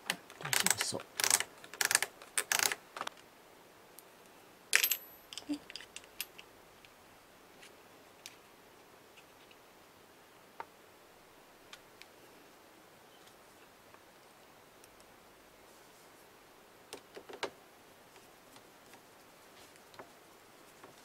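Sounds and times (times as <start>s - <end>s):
knitting machine carriage rattling: 0.3s - 2.8s.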